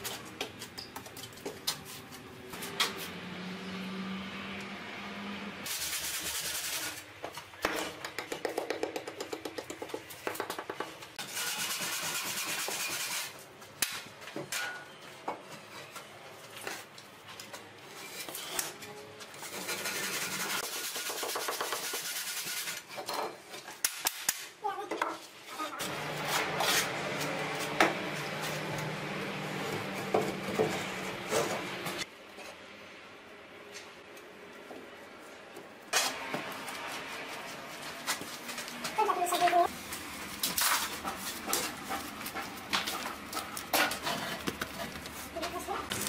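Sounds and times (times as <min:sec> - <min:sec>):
blocks knocking: 0:07.6 - 0:11.0.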